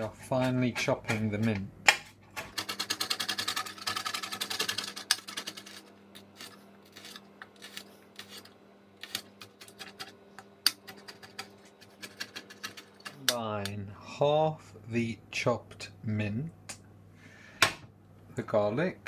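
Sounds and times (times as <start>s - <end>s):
knife chopping on board: 0.4s - 2.1s.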